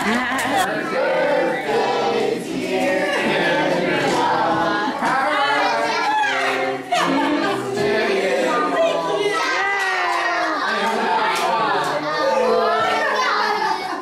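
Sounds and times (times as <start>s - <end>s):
voices singing together: 0.0s - 14.0s.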